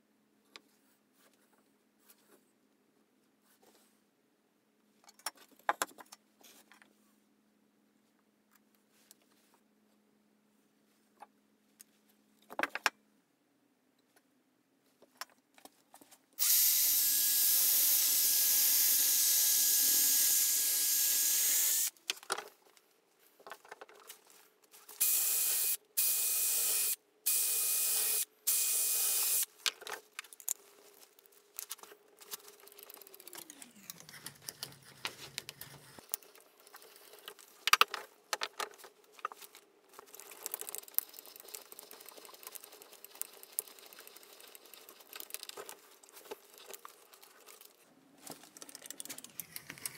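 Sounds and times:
cordless drill drilling into wood: 16.4 - 21.9, 25.0 - 29.5.

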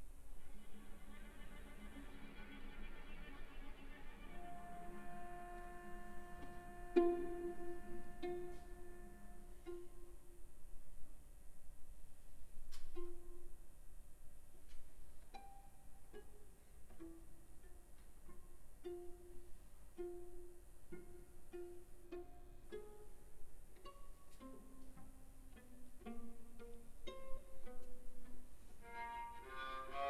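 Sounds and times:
string quartet playing: 0.4 - 10.4, 16.0 - 30.0.

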